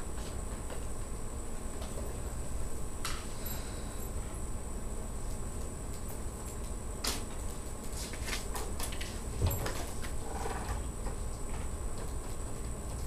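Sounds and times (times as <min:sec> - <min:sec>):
faint high whine: 0:00.0 - 0:08.2.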